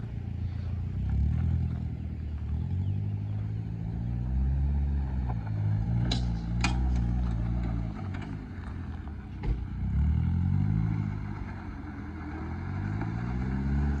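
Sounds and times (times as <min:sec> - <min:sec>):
car engine revving: 0:00.0 - 0:14.0
thump: 0:09.4 - 0:09.8.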